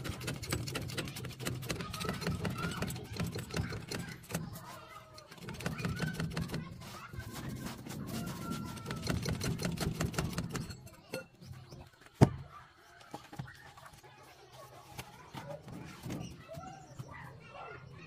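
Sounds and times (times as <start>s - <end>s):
machinery rattling and clattering: 0.0s - 7.8s.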